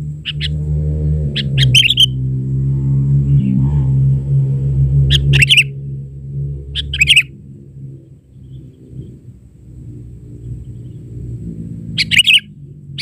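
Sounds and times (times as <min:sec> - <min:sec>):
low droning hum: 0:00.0 - 0:13.0
bird chirping calls: 0:00.2 - 0:00.6, 0:01.2 - 0:02.3, 0:05.0 - 0:05.8, 0:06.6 - 0:07.4, 0:08.0 - 0:09.4, 0:10.3 - 0:11.2, 0:11.9 - 0:13.0.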